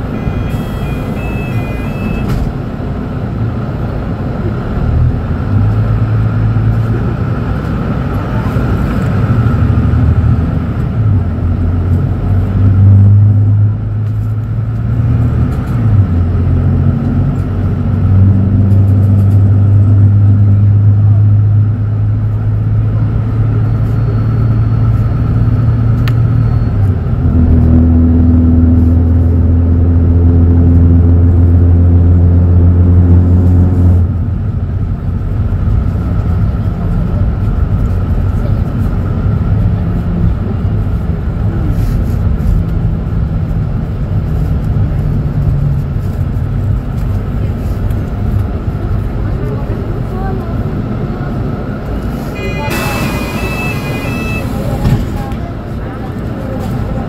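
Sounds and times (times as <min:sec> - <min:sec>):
short electronic beeps: 0:00.0 - 0:02.5, 0:23.6 - 0:27.0, 0:52.4 - 0:55.2
bus diesel engine humming: 0:00.0 - 0:57.0.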